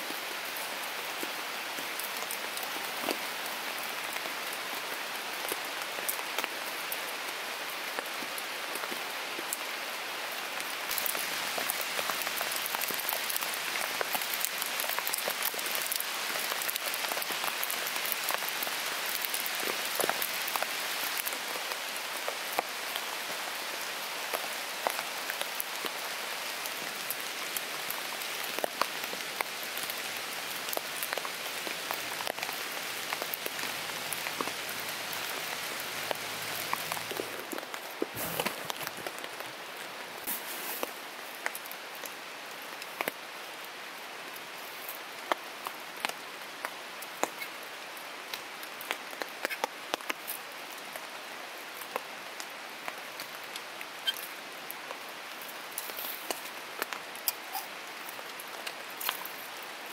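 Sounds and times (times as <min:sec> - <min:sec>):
raindrops ticking on leaves and tent: 0:00.0 - 0:59.9
steady rain falling: 0:00.0 - 0:59.9.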